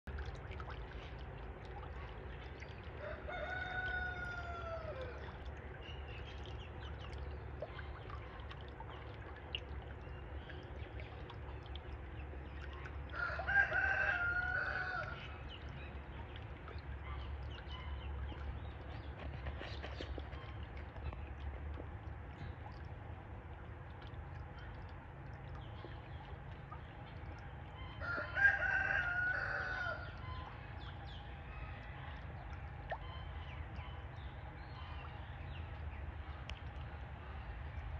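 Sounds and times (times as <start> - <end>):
rooster crowing: 3.0 - 5.2, 13.2 - 15.2, 28.0 - 30.0.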